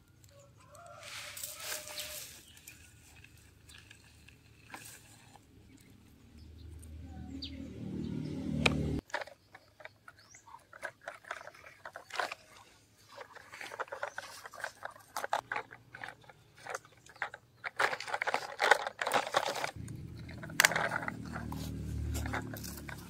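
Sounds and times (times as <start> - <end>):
toy wheels crunching gravel: 0.0 - 7.0, 9.0 - 23.0
low steady hum: 19.8 - 23.0.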